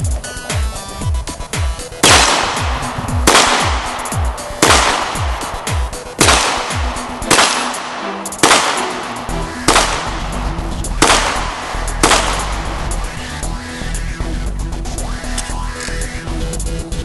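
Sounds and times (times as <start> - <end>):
electronic music with thumping beat: 0.0 - 17.0
pistol shots: 2.0 - 10.4, 11.0 - 13.0.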